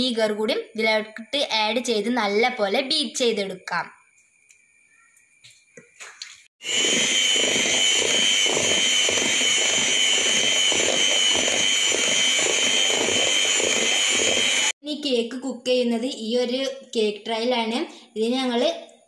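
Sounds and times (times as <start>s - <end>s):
electric hand mixer running: 6.6s - 14.8s.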